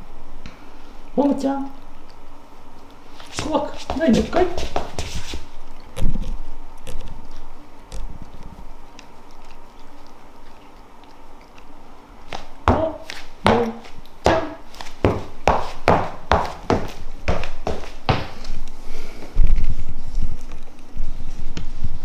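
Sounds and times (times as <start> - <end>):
cat licking fur: 7.0 - 15.8.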